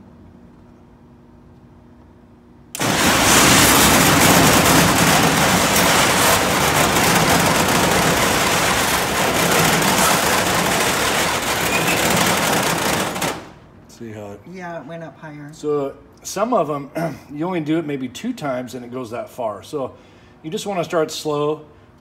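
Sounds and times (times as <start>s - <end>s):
door opener motor running: 2.8s - 13.6s
rolling steel door rattling: 2.8s - 13.6s.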